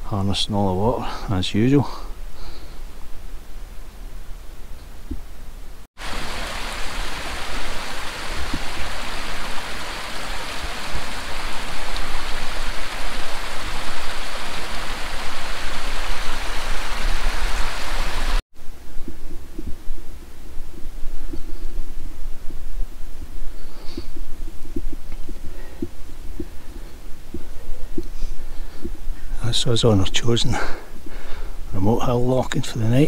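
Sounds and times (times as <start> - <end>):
stream rushing over rocks: 6.0 - 18.4.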